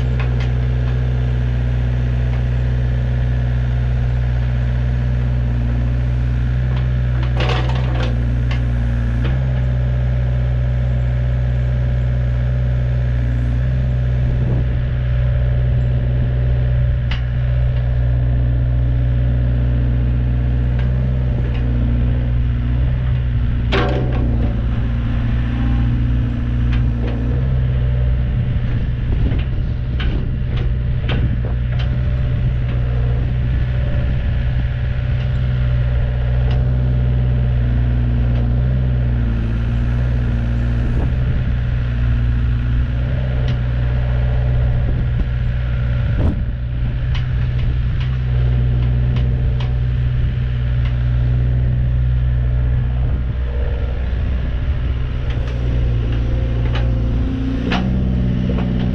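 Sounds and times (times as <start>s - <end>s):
excavator diesel engine running: 0.0s - 58.9s
clicks and knocks of working gear: 6.7s - 9.7s, 22.8s - 24.6s, 29.2s - 33.0s, 36.4s - 36.7s, 47.1s - 49.8s, 50.8s - 51.2s, 55.2s - 58.9s.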